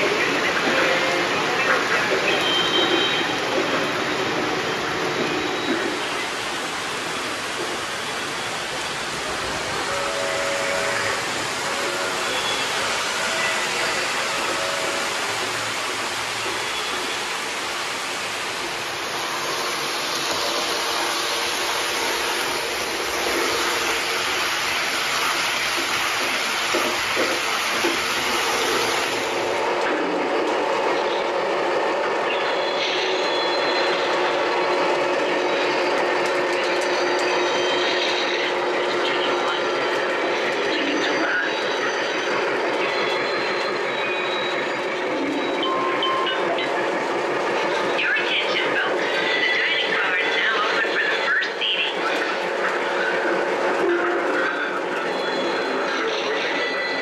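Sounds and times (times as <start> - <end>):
locomotive held tones: 9.7 - 17.3, 31.0 - 57.0.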